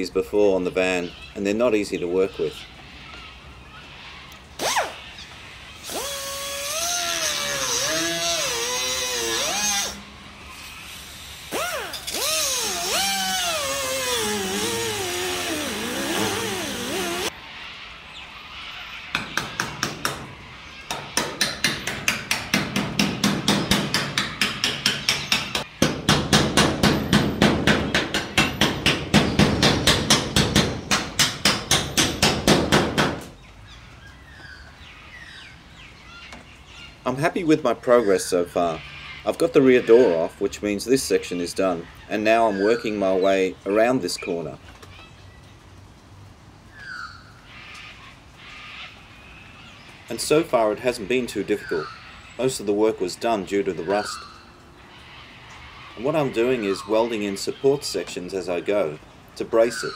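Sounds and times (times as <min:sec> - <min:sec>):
high-pitched wavering squeal: 0:05.8 - 0:17.3.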